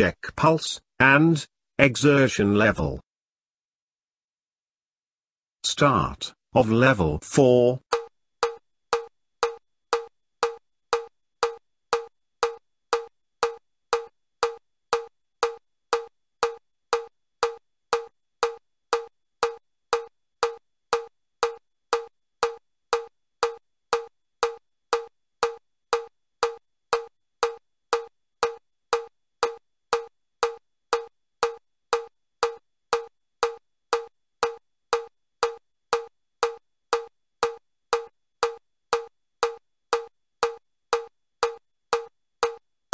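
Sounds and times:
metronome ticking: 0:07.9 - 0:42.7.

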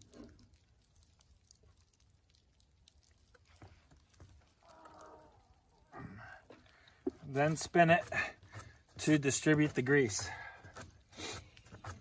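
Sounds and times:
faint call: 0:04.6 - 0:06.4.

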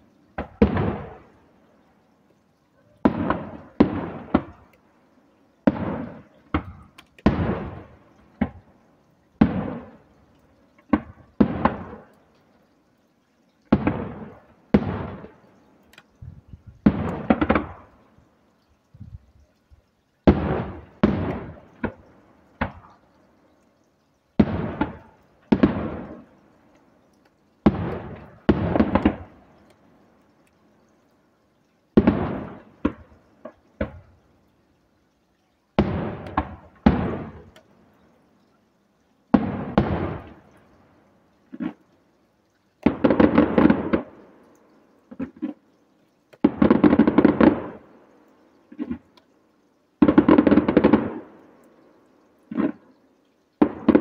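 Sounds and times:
firework shells bursting: 0:16.8 - 0:18.0, 0:20.3 - 0:23.0, 0:27.6 - 0:29.4.

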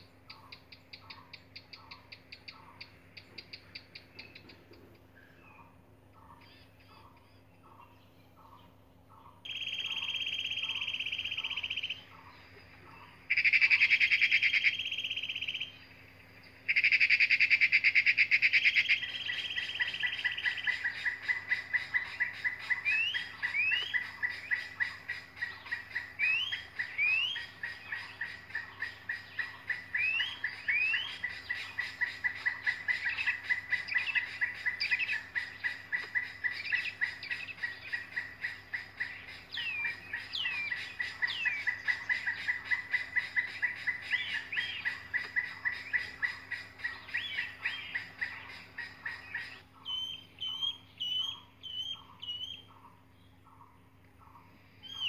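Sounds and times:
sweeping bird calls: 0:00.0 - 0:55.0
nestlings chirping: 0:18.8 - 0:52.8.

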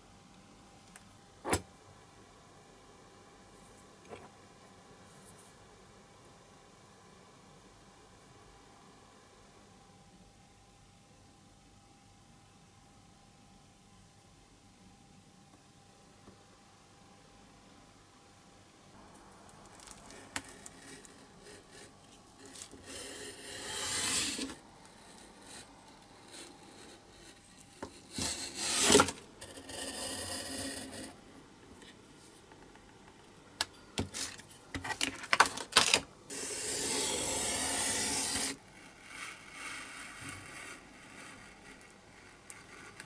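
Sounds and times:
craft knife cutting paper: 0:19.8 - 0:31.1, 0:36.3 - 0:43.0.

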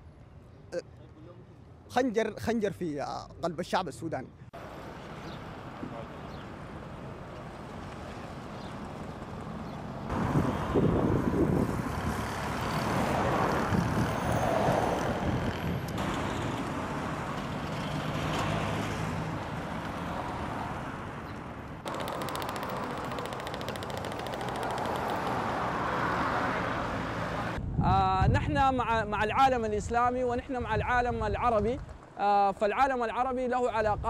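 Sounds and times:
cars and trucks passing: 0:04.6 - 0:27.6.

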